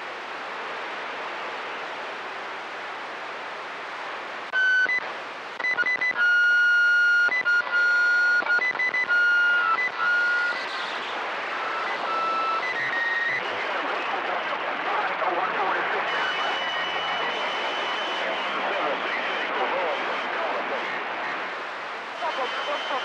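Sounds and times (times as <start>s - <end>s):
radio static hiss: 0.0s - 23.0s
whistle-like radio tones: 4.6s - 11.0s, 11.6s - 13.5s, 16.0s - 20.0s, 22.2s - 23.0s.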